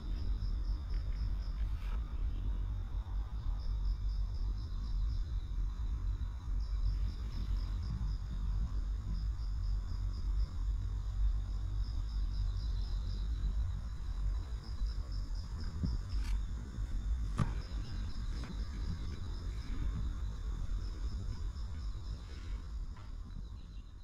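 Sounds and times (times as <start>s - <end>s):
insects chirping rapidly: 0.0s - 24.0s
low rumble: 0.0s - 24.0s
steady high insect trill: 0.0s - 24.0s.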